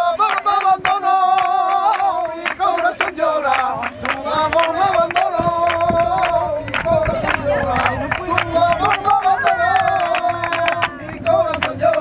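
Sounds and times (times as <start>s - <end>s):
crowd voices: 0.0s - 12.0s
rhythmic handclapping: 0.0s - 12.0s.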